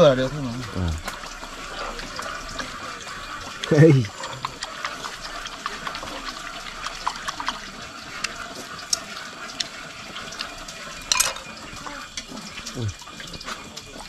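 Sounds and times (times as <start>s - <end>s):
liquid swishing in a bowl: 0.0s - 14.0s
chopsticks clinking against bowl: 11.1s - 11.5s.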